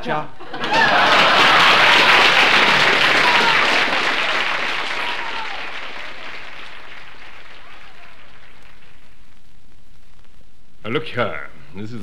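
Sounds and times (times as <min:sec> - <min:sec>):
audience applause: 0:00.6 - 0:09.4.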